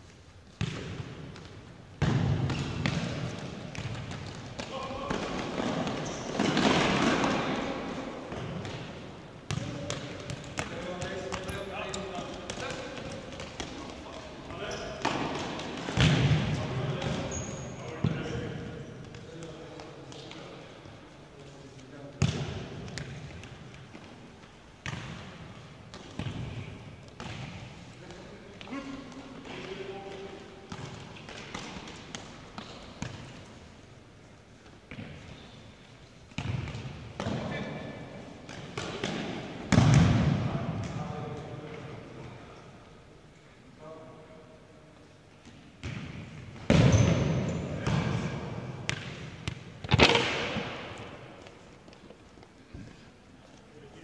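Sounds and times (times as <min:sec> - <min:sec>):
ball thudding in echoing hall: 0:00.4 - 0:21.0, 0:21.8 - 0:33.9, 0:34.5 - 0:42.6, 0:45.3 - 0:53.1.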